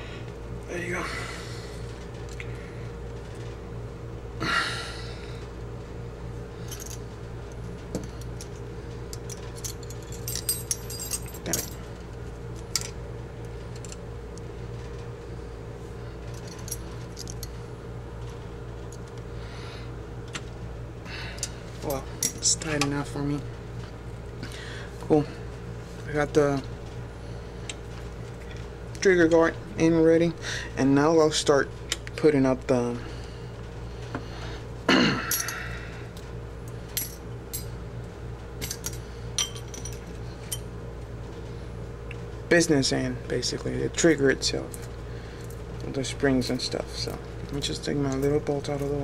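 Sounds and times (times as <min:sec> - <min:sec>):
low electrical hum: 0:00.0 - 0:49.0
metal tools clinking: 0:09.2 - 0:11.9, 0:16.3 - 0:17.6, 0:35.2 - 0:35.6, 0:37.0 - 0:37.7, 0:38.6 - 0:40.6.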